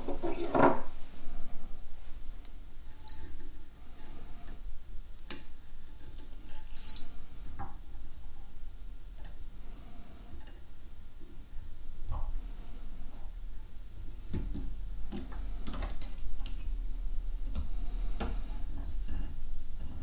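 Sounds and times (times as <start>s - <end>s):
short high squeaks: 3.0s - 3.4s, 6.7s - 7.2s, 18.8s - 19.1s.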